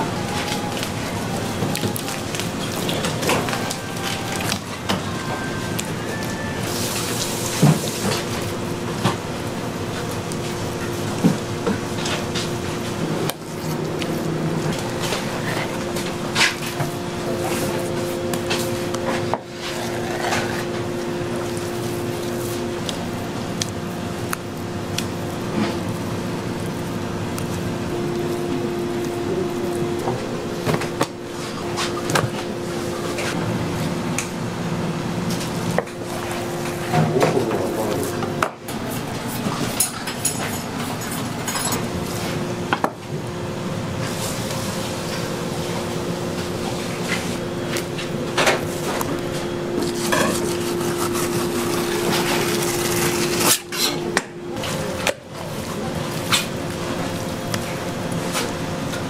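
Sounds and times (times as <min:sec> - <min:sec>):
low hum of kitchen equipment: 0:00.0 - 0:59.0
knives and utensils clattering: 0:39.2 - 0:41.9, 0:49.8 - 0:55.2.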